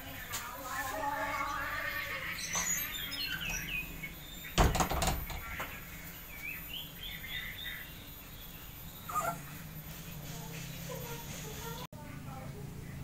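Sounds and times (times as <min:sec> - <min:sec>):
small birds chirping: 0:00.0 - 0:13.0
wooden door knocking shut: 0:04.6 - 0:05.7.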